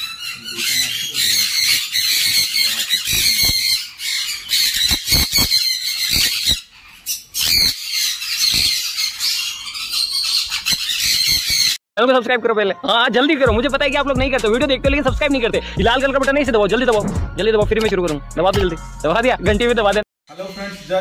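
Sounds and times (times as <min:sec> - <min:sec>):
parrots screeching: 0:00.0 - 0:11.8.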